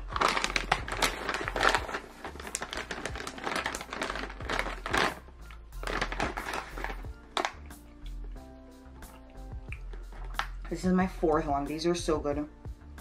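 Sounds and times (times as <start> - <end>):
plastic pouch crinkling: 0.0 - 7.7
background music: 0.0 - 13.0.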